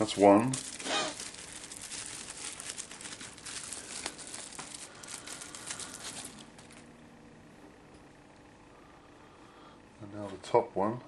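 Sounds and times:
plastic crinkling and rustling: 0.0 - 6.9.

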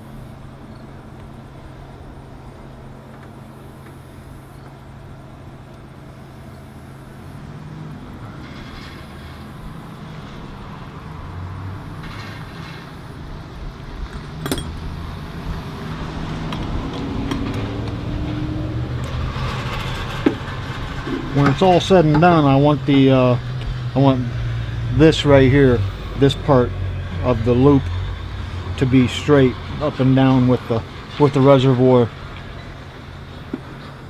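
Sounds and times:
steady low hum: 0.0 - 34.0
hands handling metal parts: 14.1 - 14.9.

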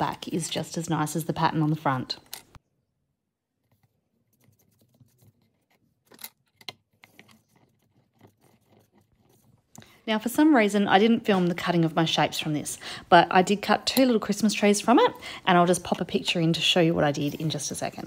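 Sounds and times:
clay pieces clicking and scratching: 3.8 - 9.8.

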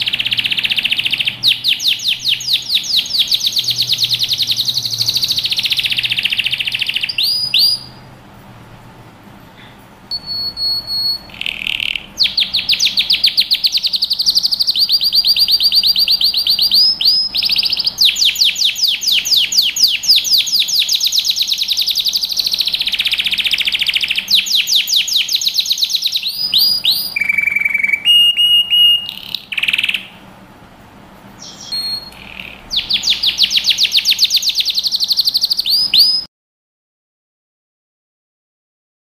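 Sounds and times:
canary singing trills: 0.0 - 8.2, 9.6 - 30.2, 31.4 - 36.3.

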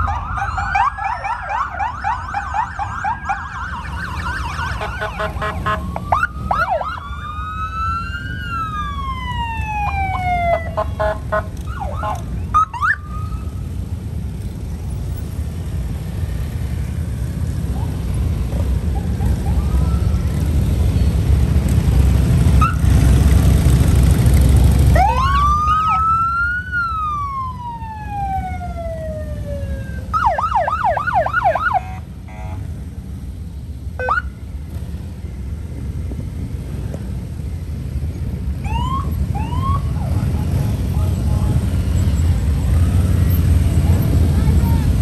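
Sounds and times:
siren wailing and yelping: 0.0 - 11.1, 11.7 - 13.5, 18.9 - 20.3, 25.0 - 32.0, 38.6 - 40.2
motorcycle engines passing: 0.0 - 45.0.

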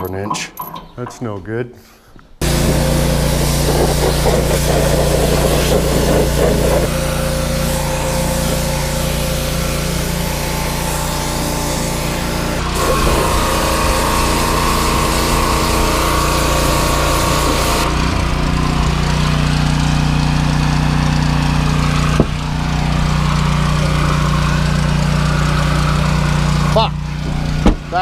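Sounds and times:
water spray hissing: 2.4 - 18.1
pressure washer engine running: 2.4 - 28.0.

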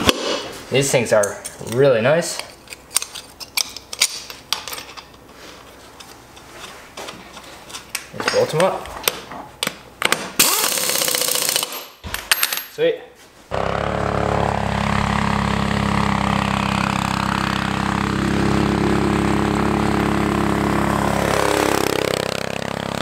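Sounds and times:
impact wrench running: 10.4 - 12.0, 13.5 - 23.0
go-kart engine running: 13.5 - 23.0.

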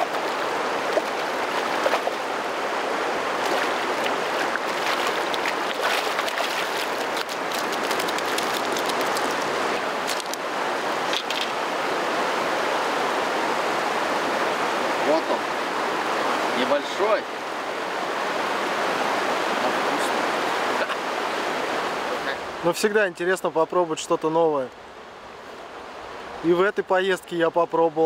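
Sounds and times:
river water rushing over gravel: 0.0 - 28.0
fish splashing into water: 3.4 - 11.5.

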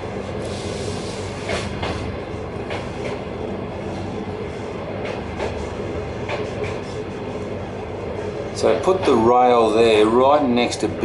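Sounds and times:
train carriage rumbling on track: 0.0 - 11.0.

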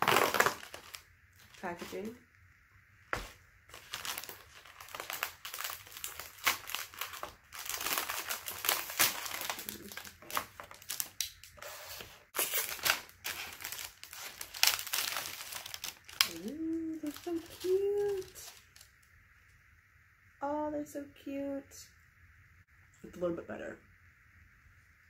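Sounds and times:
packaging crinkling and rustling: 0.0 - 2.2, 3.2 - 19.0.

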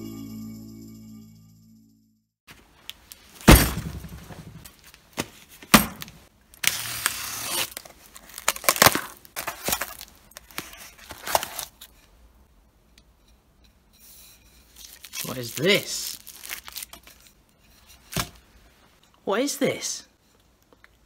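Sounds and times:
packing tape being torn: 5.9 - 11.9, 14.8 - 17.2
cardboard rustling: 7.6 - 11.9.

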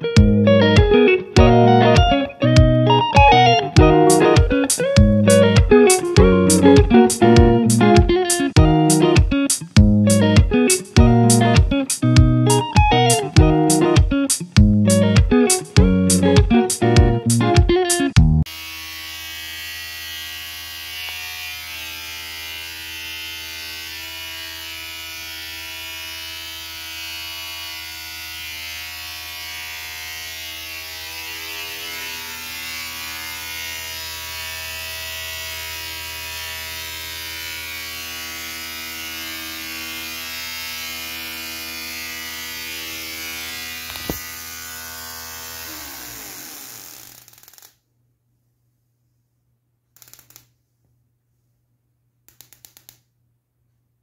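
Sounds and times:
electric motor whining: 40.8 - 47.3.

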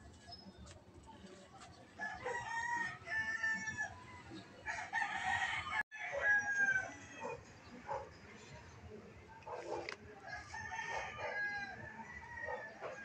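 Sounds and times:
roosters crowing: 2.0 - 7.5, 10.2 - 13.0.

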